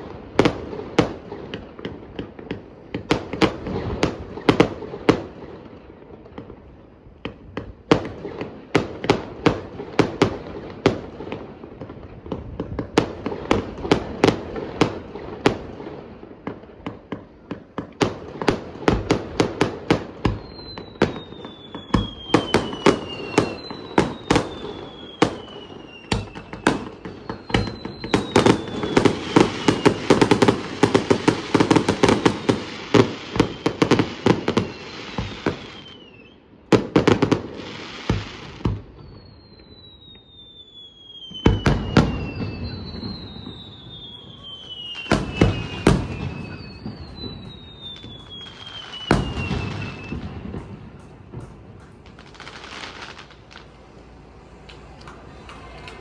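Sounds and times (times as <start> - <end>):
firework bangs and cracks: 0.0 - 56.0
firework crackling: 0.0 - 56.0
falling firework whistles: 16.5 - 56.0.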